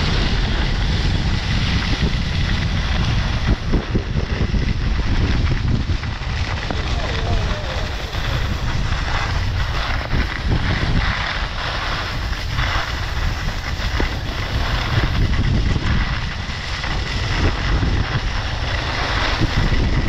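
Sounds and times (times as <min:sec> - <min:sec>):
skis scraping over snow: 0:00.0 - 0:20.0
wind buffeting microphone: 0:00.0 - 0:20.0.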